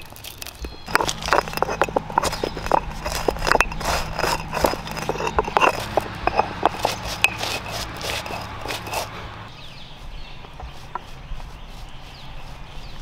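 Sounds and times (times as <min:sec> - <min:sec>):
stone roller crushing spices: 0:00.0 - 0:09.5.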